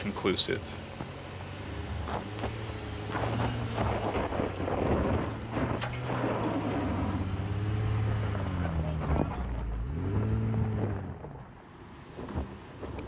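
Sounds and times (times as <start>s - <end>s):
car engine pulling uphill: 0.0s - 13.0s
wind buffeting microphone: 2.0s - 7.1s
tyres grinding over stony dirt: 3.1s - 7.2s.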